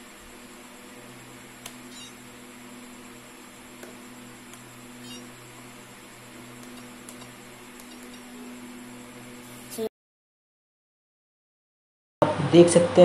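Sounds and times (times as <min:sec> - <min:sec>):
low room hum: 0:00.0 - 0:09.8.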